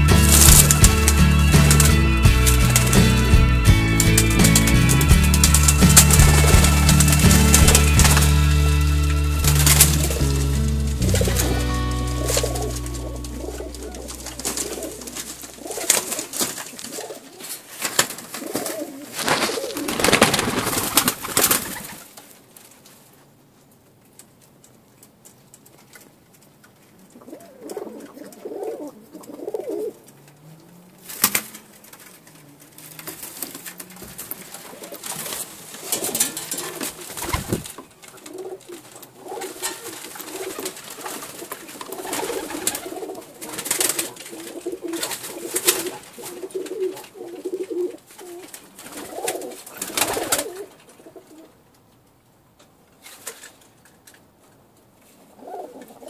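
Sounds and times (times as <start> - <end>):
pigeons cooing: 9.5 - 22.0, 27.1 - 30.1, 32.8 - 51.5, 55.3 - 56.0.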